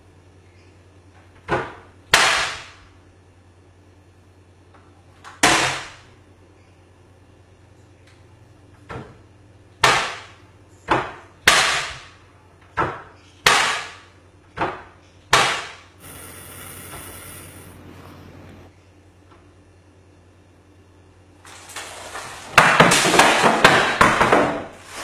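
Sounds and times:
steady hiss: 0:16.0 - 0:18.7.

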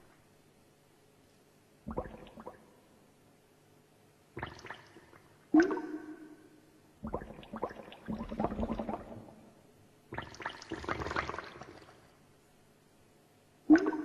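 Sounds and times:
gurgling bubbling clicks: 0:07.0 - 0:09.3.

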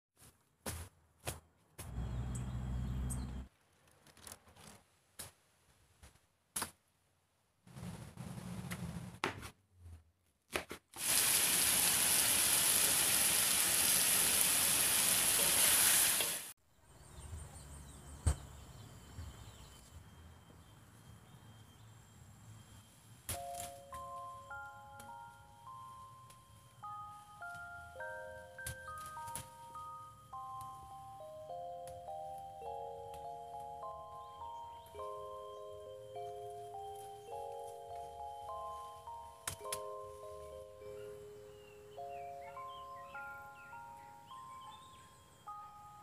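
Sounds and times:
food sizzling in a wok: 0:11.0 - 0:16.5
glockenspiel-like music notes: 0:22.5 - 0:46.0.

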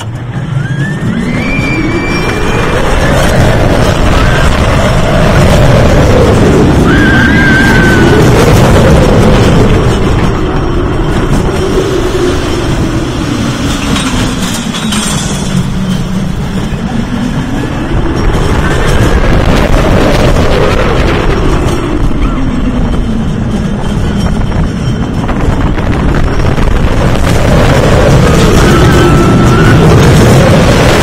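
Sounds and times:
roller coaster wheels roaring on track: 0:00.0 - 0:31.0
rushing wind: 0:00.0 - 0:31.0
riders screaming: 0:00.4 - 0:09.7, 0:27.5 - 0:31.0.

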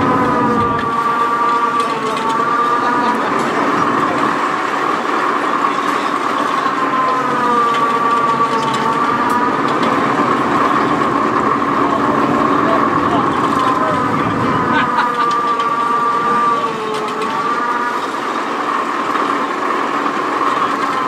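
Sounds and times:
diesel engine under load: 0:00.0 - 0:21.0
winch whine: 0:00.0 - 0:21.0.

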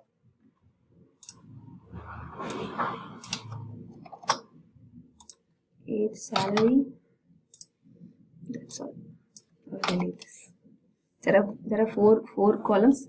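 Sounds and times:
soft low noise: 0:00.0 - 0:12.1
keyboard and mouse clicks: 0:01.2 - 0:01.5, 0:02.4 - 0:04.6, 0:05.2 - 0:05.4, 0:06.2 - 0:06.8, 0:07.5 - 0:07.8, 0:08.5 - 0:10.4.

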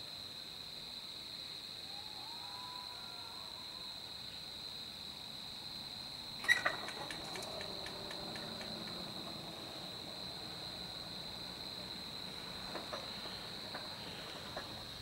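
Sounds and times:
night insects chirring: 0:00.0 - 0:15.0
faint low locomotive hum: 0:06.1 - 0:15.0.

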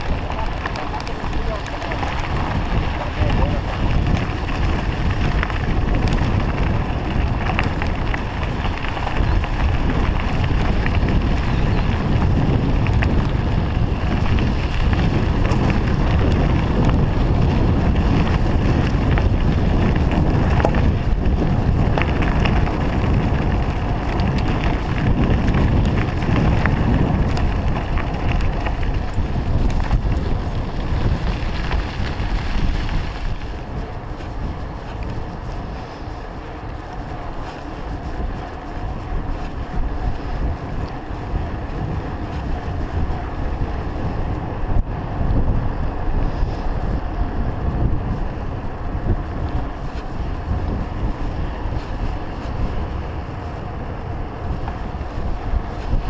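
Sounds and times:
small clicks and rattles: 0:00.0 - 0:44.1
tyres rolling on gravel: 0:00.0 - 0:56.0
wind buffeting microphone: 0:00.0 - 0:56.0.

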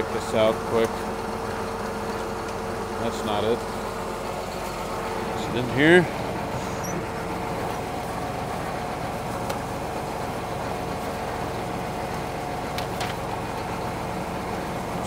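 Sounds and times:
steady hum: 0:00.0 - 0:15.0
tractor engine drone: 0:00.0 - 0:15.0
papers rustling and clicking: 0:12.7 - 0:13.2.

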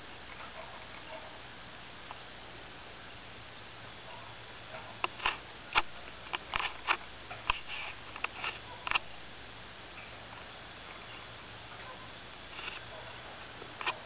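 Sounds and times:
twigs and leaves crackling: 0:05.0 - 0:09.1, 0:10.0 - 0:14.0.

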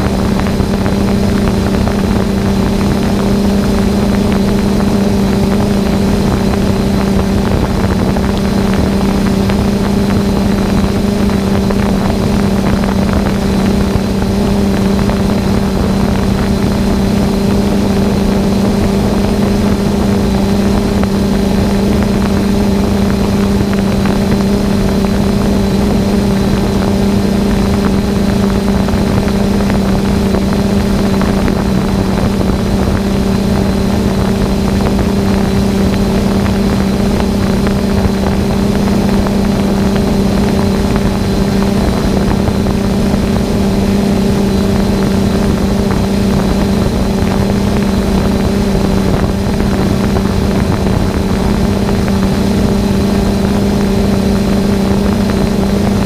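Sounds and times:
drone propellers humming: 0:00.0 - 0:56.0
faint high whine: 0:00.0 - 0:56.0.

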